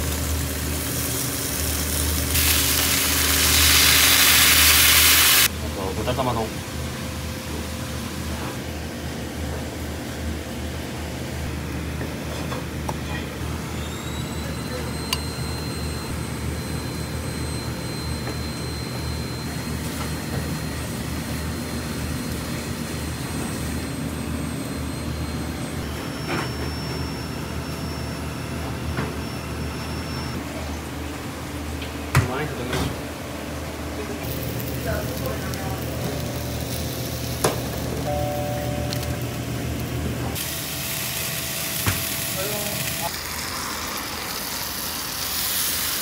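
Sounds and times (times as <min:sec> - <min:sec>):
kitchen machinery hum: 0:00.0 - 0:46.0
thin high whistle: 0:13.7 - 0:16.1
high tone: 0:38.0 - 0:40.0.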